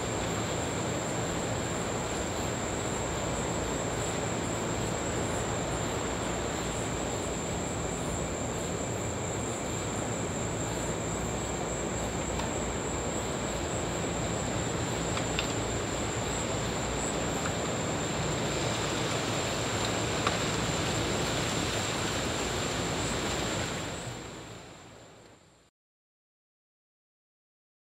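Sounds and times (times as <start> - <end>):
ocean surf washing on beach: 16.8 - 24.6.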